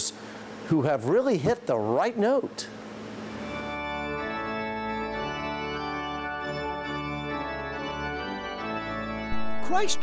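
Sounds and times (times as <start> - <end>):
pipe organ sustained chords: 2.8 - 10.0.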